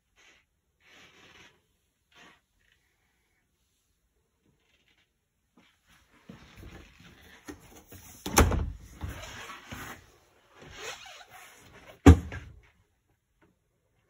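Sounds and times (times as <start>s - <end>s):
scuffing and handling noise: 5.5s - 12.8s.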